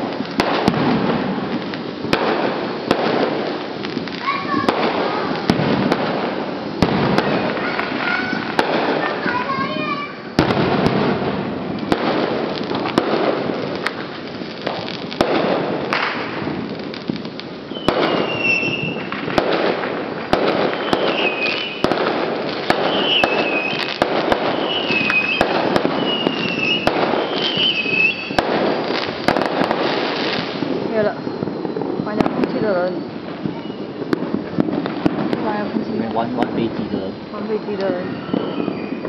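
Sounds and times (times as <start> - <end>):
firework bangs: 0.0 - 39.0
firework crackling: 0.0 - 39.0
high whistling squeals: 6.4 - 10.4, 17.7 - 19.2, 20.6 - 21.9, 22.8 - 29.3, 29.9 - 39.0.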